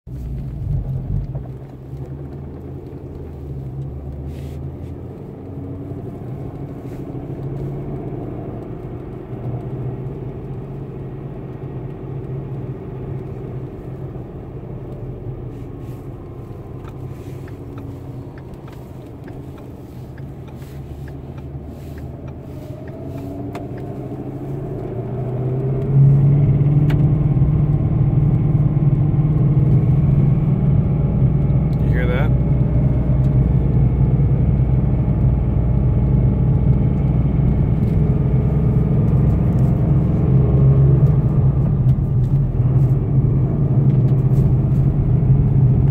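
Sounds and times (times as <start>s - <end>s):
car engine running: 0.1s - 45.9s
fan rubbing noise: 15.5s - 25.1s.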